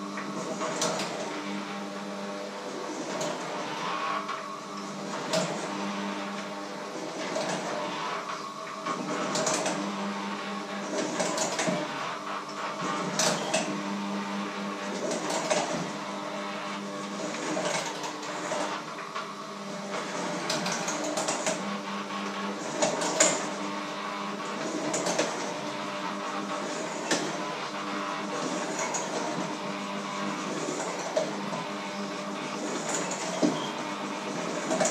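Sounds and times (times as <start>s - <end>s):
electric mixer motor humming: 0.0s - 34.9s.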